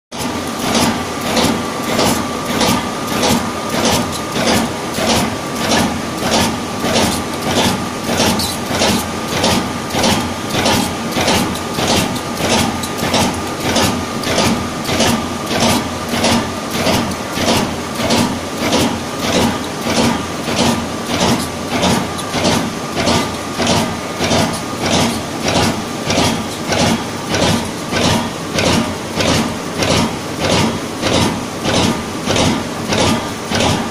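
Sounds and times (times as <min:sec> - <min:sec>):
machine pulsating rhythmically: 0:00.2 - 0:33.9.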